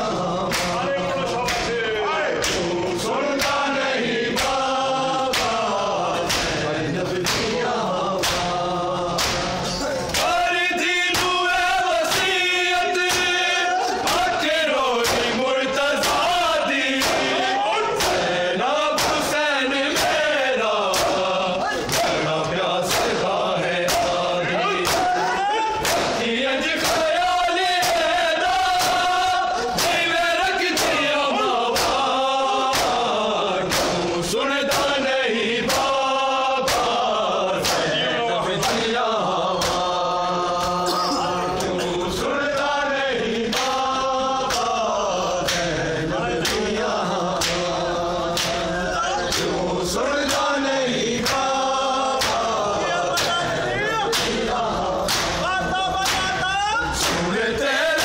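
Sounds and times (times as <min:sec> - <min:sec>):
men chanting together: 0:00.0 - 0:58.0
hands slapping chests: 0:00.5 - 0:00.8, 0:01.4 - 0:01.8, 0:02.4 - 0:03.7, 0:04.3 - 0:07.6, 0:08.2 - 0:08.6, 0:09.2 - 0:10.4, 0:11.1 - 0:11.4, 0:14.0 - 0:15.4, 0:16.9 - 0:17.4, 0:18.0 - 0:18.3, 0:19.0 - 0:19.3, 0:20.8 - 0:23.2, 0:23.8 - 0:24.2, 0:24.8 - 0:25.1, 0:25.8 - 0:26.2, 0:28.8 - 0:29.1, 0:30.7 - 0:31.1, 0:31.7 - 0:32.1, 0:32.7 - 0:34.1, 0:34.7 - 0:35.0, 0:36.6 - 0:37.9, 0:44.5 - 0:44.8, 0:45.4 - 0:45.7, 0:46.4 - 0:46.7, 0:47.3 - 0:48.7, 0:49.3 - 0:49.6, 0:50.2 - 0:50.5, 0:51.2 - 0:53.4, 0:54.1 - 0:54.4, 0:55.0 - 0:56.3, 0:57.0 - 0:57.3.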